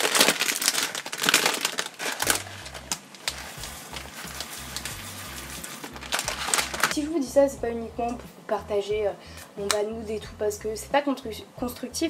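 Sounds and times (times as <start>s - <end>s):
plastic packet crinkling: 0.0s - 7.0s
quiet bass-heavy music: 2.2s - 12.0s.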